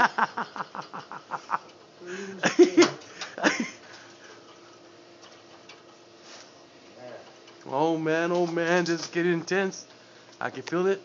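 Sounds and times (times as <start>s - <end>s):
man laughing: 0.0s - 3.9s.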